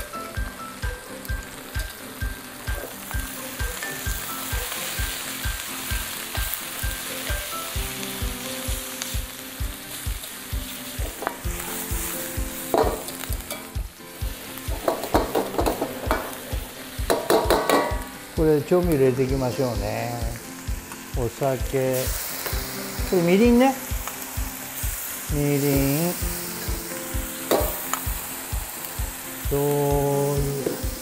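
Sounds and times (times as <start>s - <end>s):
background music with steady beat: 0.0s - 31.0s
meat and peppers sizzling in a wok: 0.0s - 31.0s
metal ladle clinking on wok: 17.1s - 18.0s.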